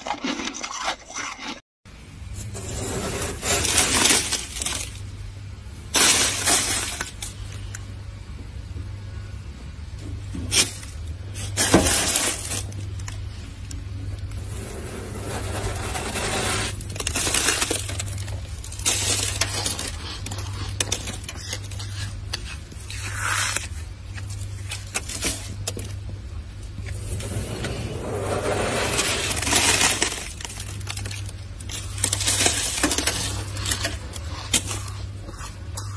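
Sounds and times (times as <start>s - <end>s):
frost being scraped: 2.4s - 5.0s, 14.4s - 25.2s, 26.9s - 35.9s
ice crystals clinking: 2.4s - 5.0s, 5.9s - 7.5s, 10.5s - 13.1s, 14.4s - 22.1s, 26.9s - 35.1s.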